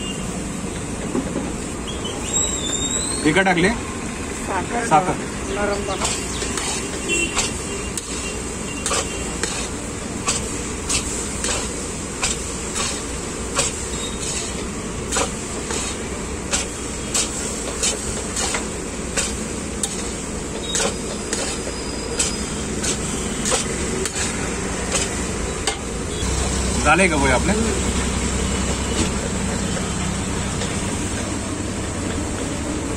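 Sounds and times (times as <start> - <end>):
steady background noise: 0.0 - 32.9.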